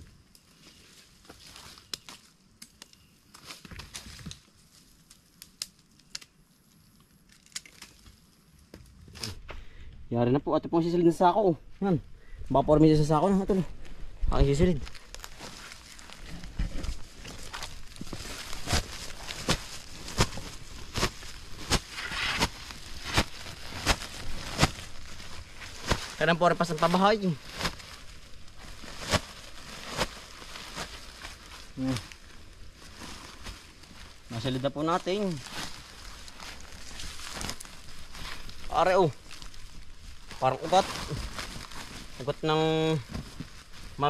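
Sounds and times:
plastic sack rustling: 12.5s - 44.0s.

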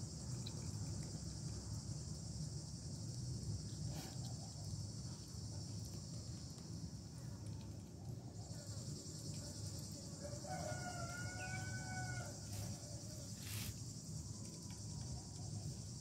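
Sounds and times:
insects shrilling: 8.4s - 14.3s
rooster crowing: 10.2s - 12.8s
short hissing noises: 13.3s - 13.8s.

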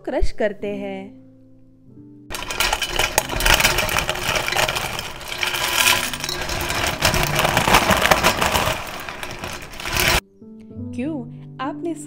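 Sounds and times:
crisp snacks crunching by hand: 2.3s - 10.2s.

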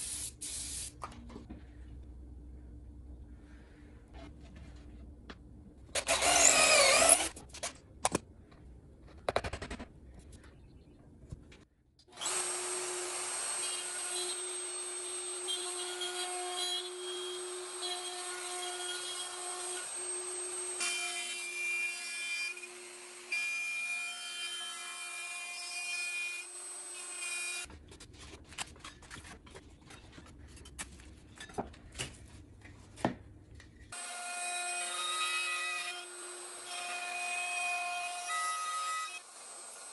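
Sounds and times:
router whining: 6.0s - 7.3s, 12.2s - 21.5s.

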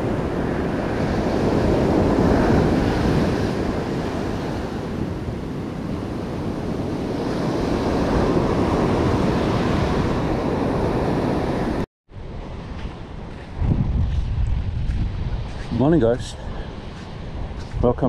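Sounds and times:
ocean surf breaking: 0.0s - 13.7s
wind buffeting microphone: 0.0s - 18.0s.

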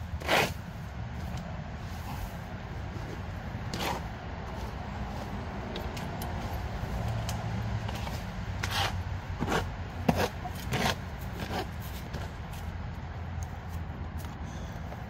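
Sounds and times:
rake scraping floor: 0.0s - 6.6s, 7.8s - 12.7s
steady low rumble: 0.0s - 15.0s.

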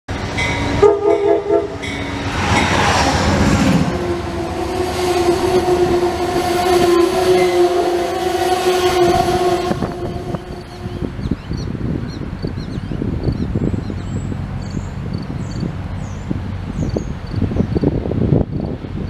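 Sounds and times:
coaches rolling over rails: 0.1s - 12.0s
train passing with wheel noise: 0.1s - 19.0s
train horn blast: 0.4s - 11.4s.

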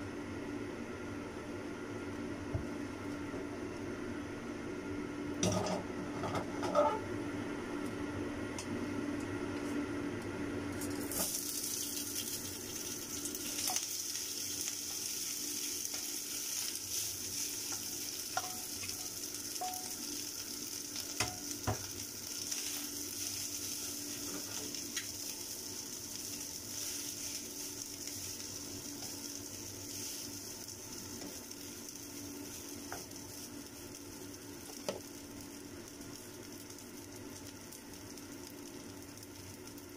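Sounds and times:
hot oil sizzling in a wok: 10.8s - 39.9s
rice stirred with wooden spatula: 13.4s - 39.9s
utensils knocking against pan: 18.3s - 18.7s, 19.6s - 19.9s.

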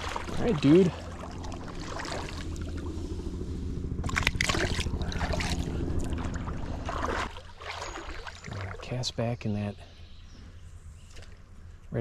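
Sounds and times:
creek water trickling: 0.0s - 3.3s, 4.0s - 10.1s
low hum: 0.0s - 12.0s.

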